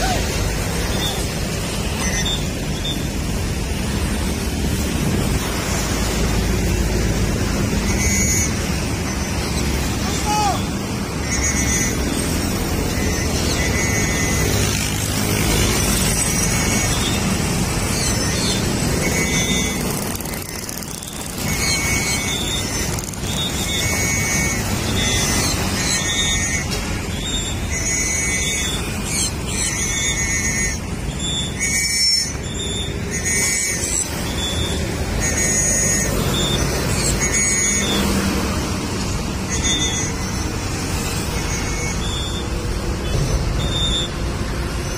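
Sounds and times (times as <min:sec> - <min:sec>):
road traffic passing: 0:00.0 - 0:44.9
warbling high-pitched chirp: 0:00.0 - 0:44.9.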